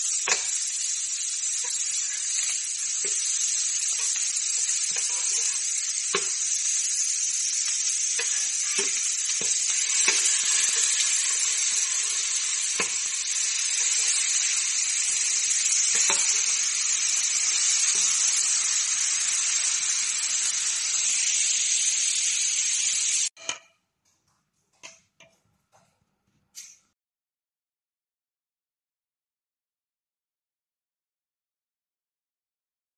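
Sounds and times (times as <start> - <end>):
burger patties sizzling on griddle: 0.0 - 23.6
metal spatula clicking and scraping: 0.2 - 21.1.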